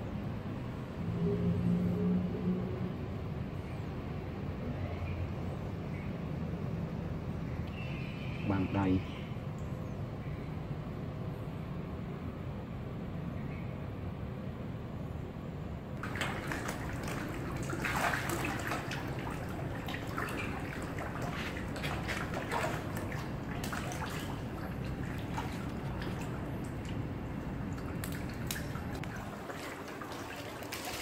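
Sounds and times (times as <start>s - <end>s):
steady low rumble: 9.3s - 30.2s
fish splashing in pond water: 16.0s - 31.0s.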